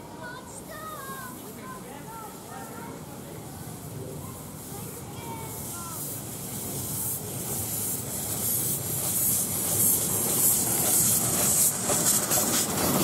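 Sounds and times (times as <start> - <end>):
steam hissing from locomotive: 0.0 - 13.0
wheels rumbling on track: 4.0 - 13.0.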